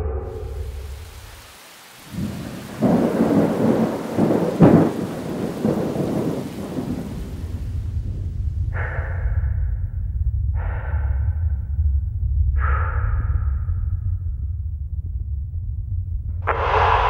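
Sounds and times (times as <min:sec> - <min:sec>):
steady rain: 0:00.0 - 0:08.8
thunder rumbling: 0:00.0 - 0:10.6, 0:16.4 - 0:17.0.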